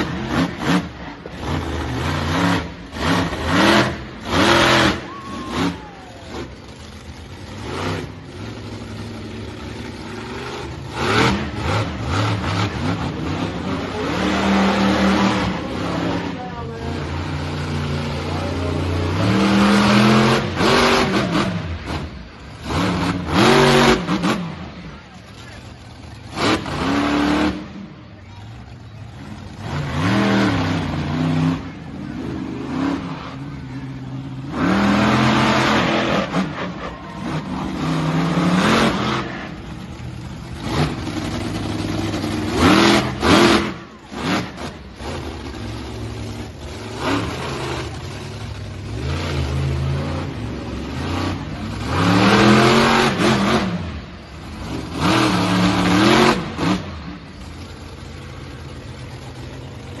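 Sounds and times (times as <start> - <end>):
truck engine revving: 0.0 - 60.0.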